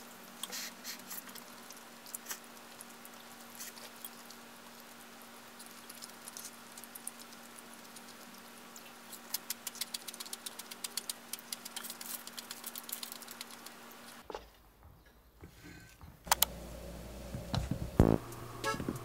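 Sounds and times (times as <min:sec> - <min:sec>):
close chewing and mouth sounds: 0:00.3 - 0:14.2
faint steady hum: 0:15.0 - 0:19.0.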